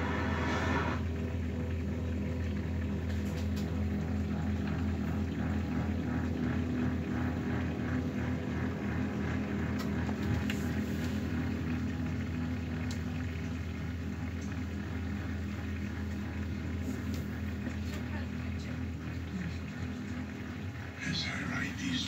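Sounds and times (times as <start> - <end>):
dishwasher motor and pump hum: 0.0 - 22.0
water spraying and sloshing: 9.3 - 20.6.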